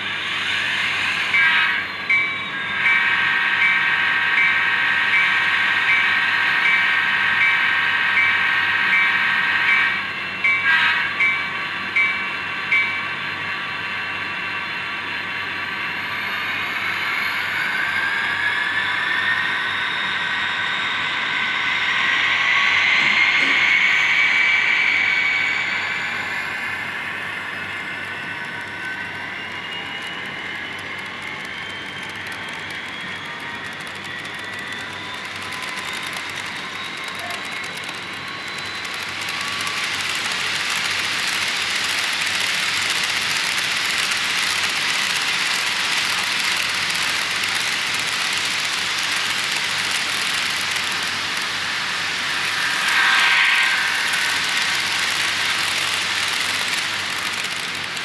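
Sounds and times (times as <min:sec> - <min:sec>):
model train wheels rolling: 0:16.1 - 0:58.0.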